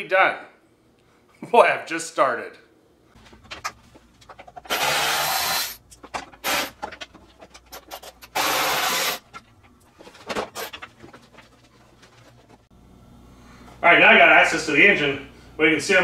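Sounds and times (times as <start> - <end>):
scraping and clattering: 5.9 - 8.4, 9.2 - 12.7.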